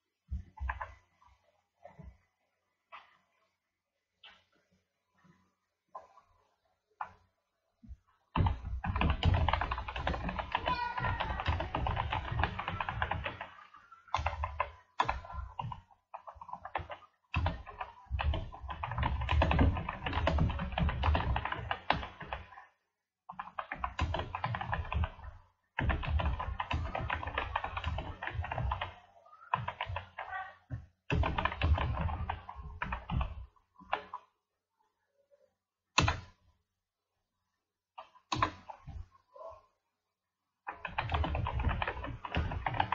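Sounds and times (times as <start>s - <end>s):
typing on computer keyboard: 8.4s - 22.6s, 23.3s - 30.3s, 31.1s - 34.2s, 40.7s - 42.9s.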